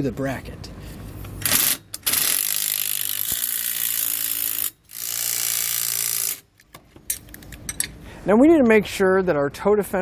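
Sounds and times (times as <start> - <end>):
impact driver hammering bolts: 1.4 - 6.4.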